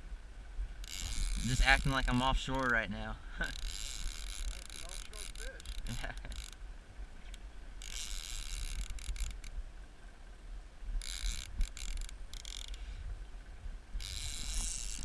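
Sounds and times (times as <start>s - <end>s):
fishing reel ratcheting: 0.8s - 2.8s, 3.4s - 6.6s, 7.3s - 9.6s, 11.0s - 12.8s, 14.0s - 15.0s.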